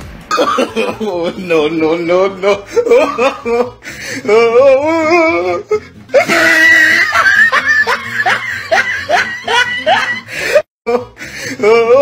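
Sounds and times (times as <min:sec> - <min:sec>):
people laughing and yelling: 0:06.2 - 0:10.4.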